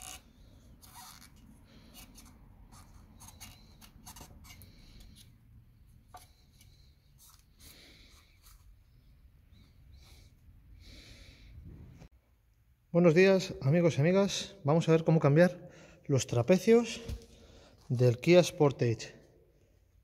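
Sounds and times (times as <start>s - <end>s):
gloved fingers rubbing rubber: 0.0s - 5.4s, 6.0s - 10.5s.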